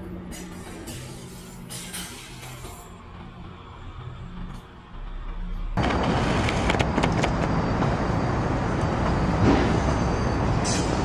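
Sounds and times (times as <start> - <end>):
city rumble: 0.0 - 11.0.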